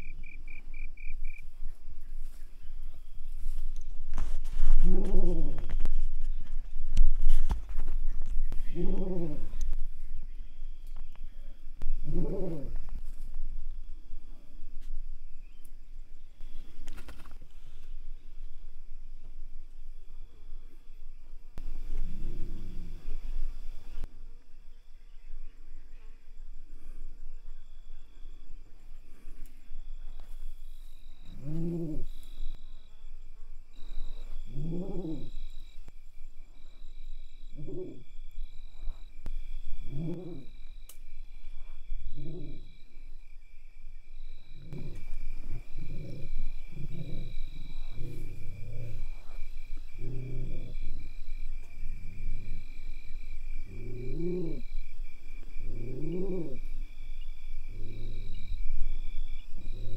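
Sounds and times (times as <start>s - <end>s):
insect chirring: 0.0s - 1.8s, 2.8s - 59.9s
low animal calls: 4.5s - 6.4s, 8.3s - 10.0s, 10.6s - 13.3s, 21.6s - 24.1s, 30.0s - 32.8s, 33.7s - 35.9s, 36.5s - 59.9s.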